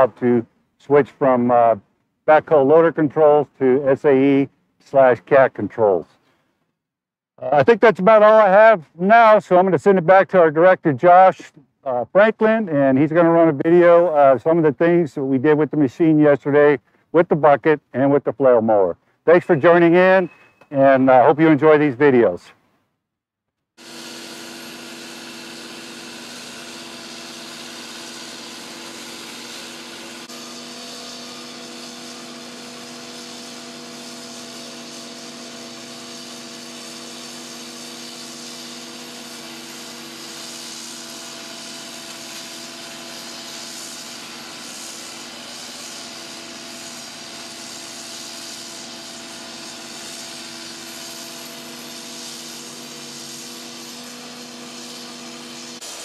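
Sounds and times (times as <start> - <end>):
excavator engine and rotor hum: 23.9 - 36.6.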